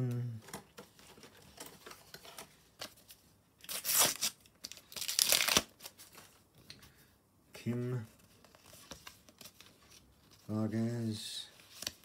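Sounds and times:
sticker packet ripping: 3.7 - 5.8.

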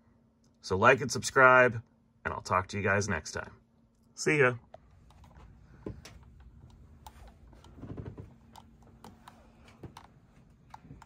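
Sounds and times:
mouse clicking: 8.5 - 11.0.

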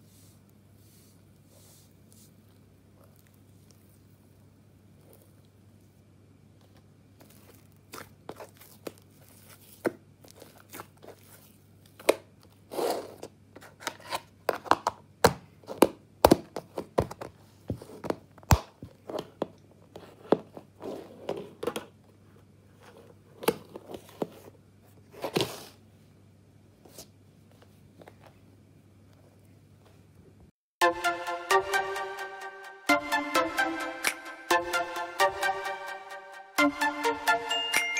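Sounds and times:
faint low hum: 0.0 - 13.7.

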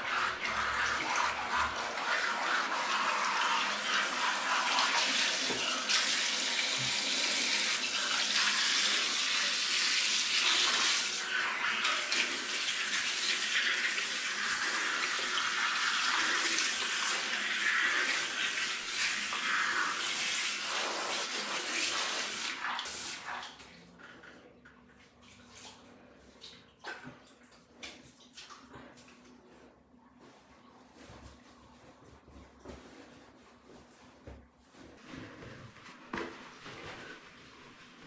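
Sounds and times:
shower water spraying on fur: 13.7 - 23.4.

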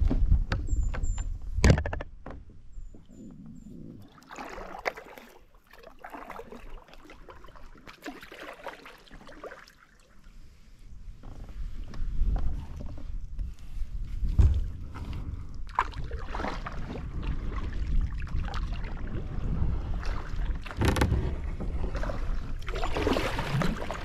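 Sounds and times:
kayak pedal drive rumbling: 0.0 - 8.0, 10.4 - 24.0
water sloshing and splashing: 3.0 - 24.0.

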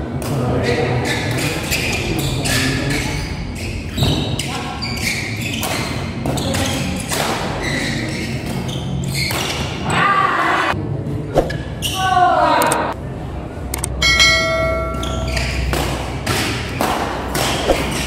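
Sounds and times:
racket striking shuttlecock: 14.8 - 18.0.

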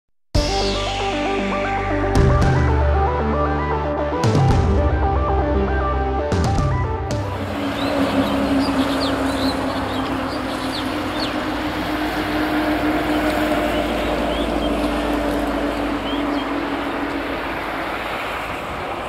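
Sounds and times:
rumbling outdoor hum: 7.2 - 19.0
bird chirps: 7.6 - 11.7, 13.1 - 14.9, 16.0 - 16.6.

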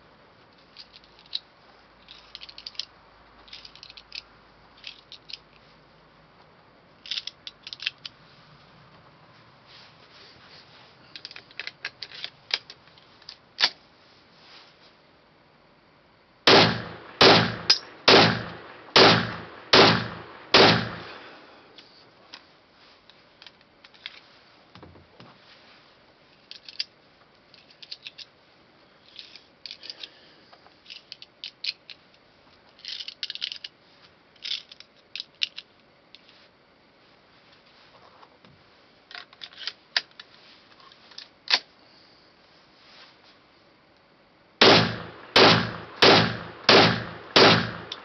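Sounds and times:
metallic clicks and rattles: 0.7 - 5.6, 7.0 - 8.2
gunshots: 16.5 - 21.2, 44.6 - 48.0.

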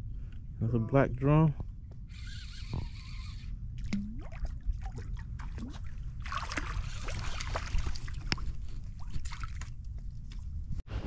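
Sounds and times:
fish splashing in water: 3.9 - 9.8.

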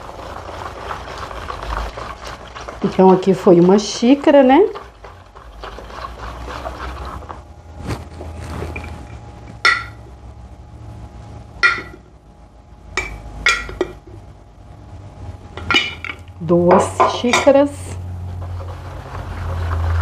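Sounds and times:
whisk stirring batter: 0.0 - 7.5, 18.3 - 20.0.

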